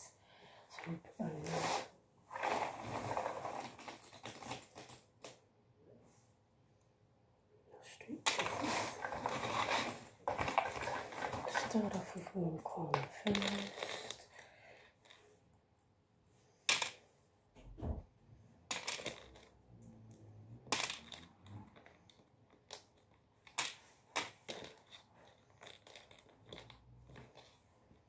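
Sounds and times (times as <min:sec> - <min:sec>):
jigsaw pieces rustling: 0:01.5 - 0:05.4, 0:08.3 - 0:12.3, 0:13.0 - 0:15.3, 0:22.6 - 0:28.0.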